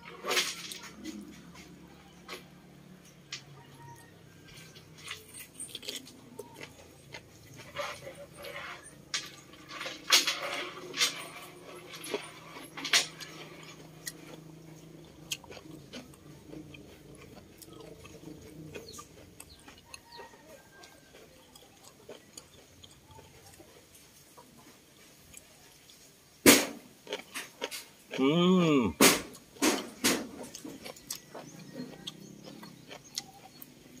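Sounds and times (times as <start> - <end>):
wet chewing mouth clicks: 12.6 - 23.8, 29.3 - 34.0.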